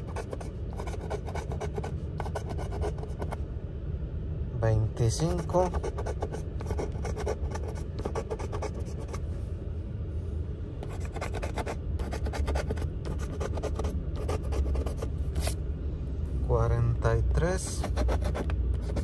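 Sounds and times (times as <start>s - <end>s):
coin scratching a ticket: 0.0s - 3.4s, 5.3s - 9.2s, 10.8s - 15.6s, 17.7s - 19.0s
low steady rumble: 0.0s - 19.0s.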